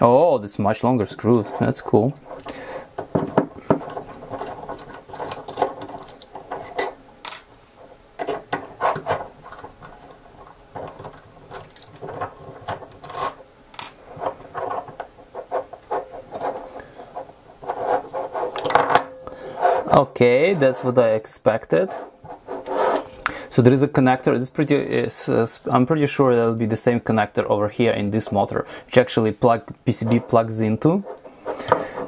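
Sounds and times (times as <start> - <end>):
plastic scratching on a desk: 1.0 - 6.9, 7.8 - 13.4, 14.0 - 18.7, 19.5 - 23.2, 29.9 - 32.0
plastic clicks and scrapes: 1.2 - 7.4, 8.2 - 18.8, 30.0 - 32.0.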